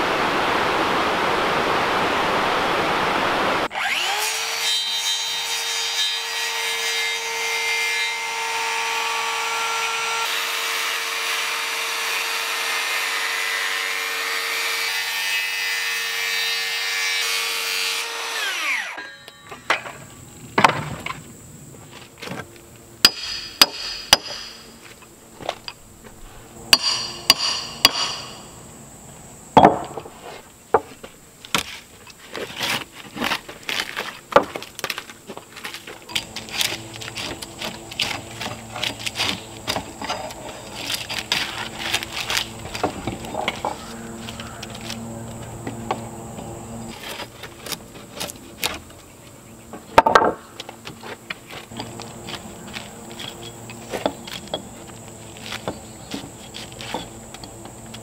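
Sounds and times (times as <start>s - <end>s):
sharp wooden knocks: 29.6s - 30.1s, 49.9s - 50.5s.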